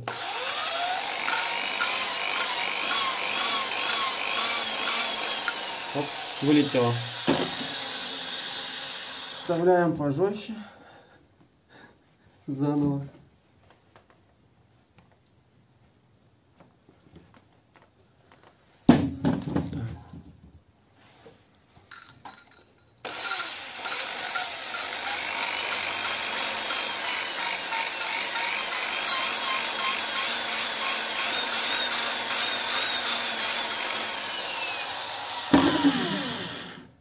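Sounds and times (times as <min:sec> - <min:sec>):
electric drill whining: 0:00.0 - 0:09.6, 0:23.0 - 0:37.0.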